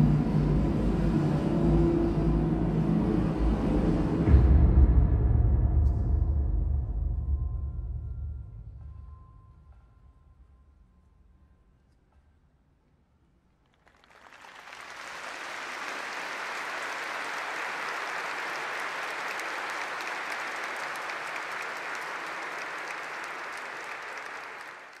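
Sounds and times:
audience applauding: 13.7 - 25.0.

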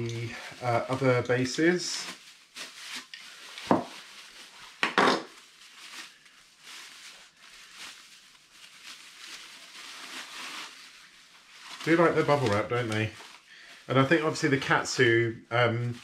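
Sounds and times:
sharp bubble wrap crackles: 0.1 - 14.8
bubble wrap crinkling: 0.1 - 16.0.

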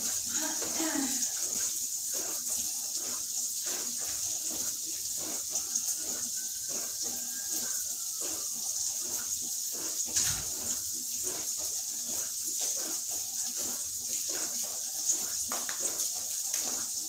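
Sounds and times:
food sizzling in a frying pan: 0.0 - 3.2, 4.6 - 11.5.

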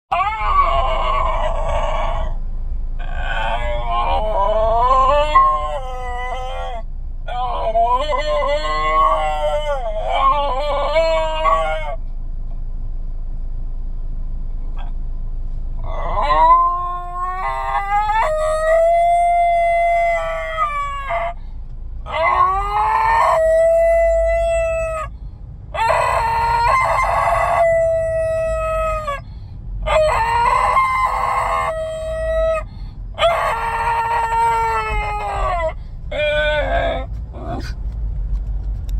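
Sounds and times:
dog howling and yodelling: 0.1 - 2.4, 3.0 - 12.0, 15.8 - 21.4, 22.1 - 25.1, 25.7 - 29.2, 29.8 - 37.8
low car rumble: 0.1 - 38.9.

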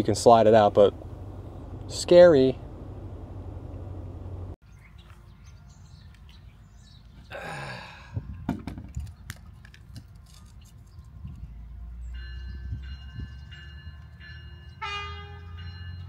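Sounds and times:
breathy sigh: 7.3 - 8.4.

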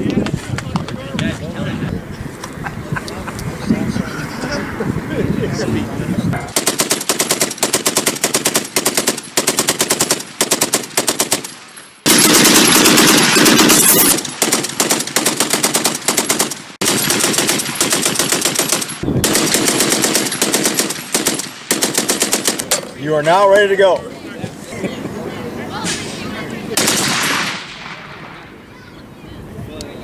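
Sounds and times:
machine gun firing bursts: 6.5 - 22.7, 26.8 - 27.9.

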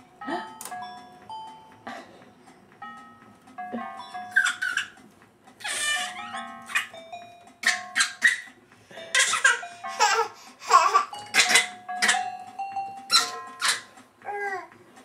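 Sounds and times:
electronic keyboard held notes: 0.0 - 15.0
baby laughing: 4.3 - 5.0, 5.6 - 7.0, 7.6 - 8.5, 9.1 - 12.2, 13.1 - 14.7.

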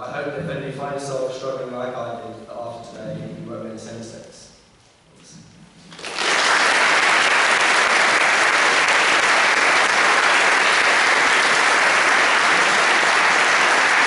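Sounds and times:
audience applauding: 5.9 - 14.0.

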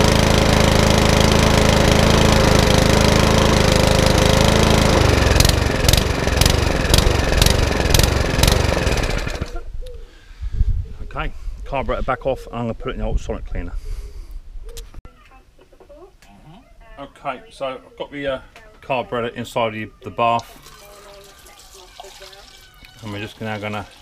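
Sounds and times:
lawnmower engine sputtering: 0.0 - 9.6.

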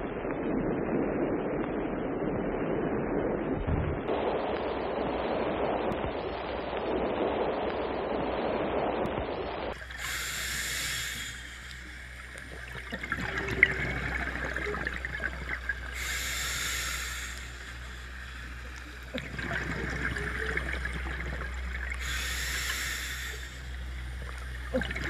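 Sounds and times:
muffled rushing noise: 0.0 - 25.0
water trickling and gurgling: 9.7 - 25.0
hissing water washes: 9.8 - 25.0.

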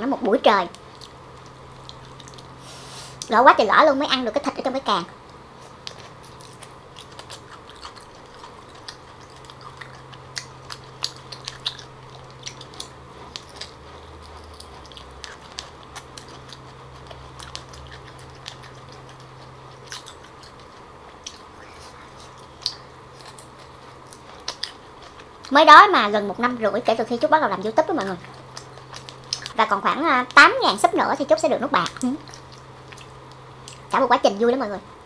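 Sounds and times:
faint low hum: 0.0 - 35.0
wet mouth chewing: 0.7 - 3.3, 5.3 - 25.6, 27.8 - 29.6, 31.8 - 34.0.

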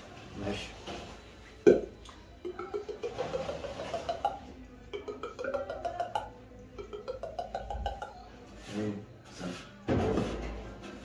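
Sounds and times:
mouth tongue clicks: 4.0 - 8.2.

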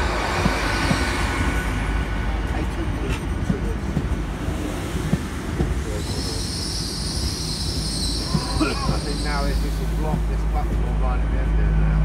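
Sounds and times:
train rumbling past: 0.0 - 12.0
high metallic squeal of train: 5.9 - 10.1.

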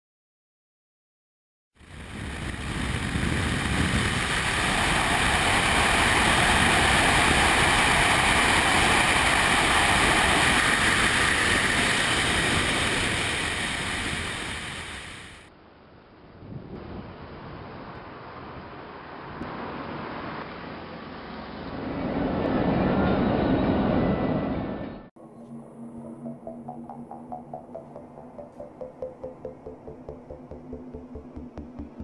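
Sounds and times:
rushing wind: 1.8 - 15.4
road noise: 17.1 - 22.5.

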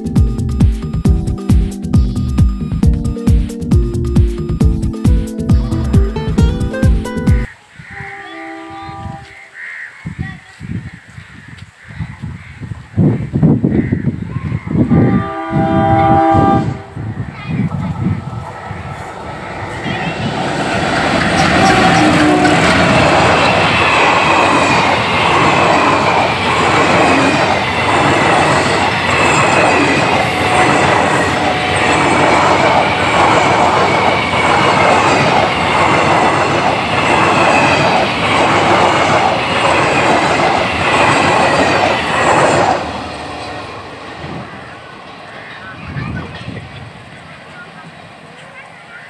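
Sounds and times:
high steady tone: 0.0 - 7.5, 15.4 - 47.8.

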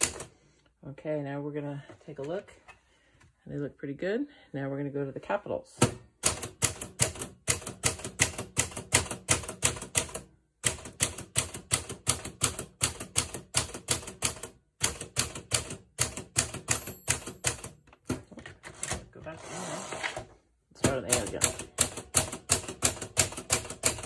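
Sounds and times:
manual typewriter typing: 0.0 - 0.3, 6.2 - 18.1, 20.8 - 24.0.

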